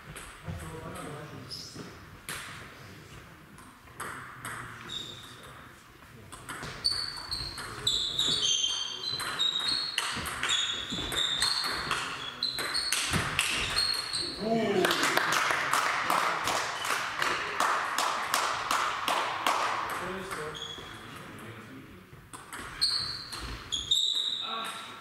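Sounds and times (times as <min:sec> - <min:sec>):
table tennis ball hits: 0:08.8 - 0:14.2, 0:22.3 - 0:23.6.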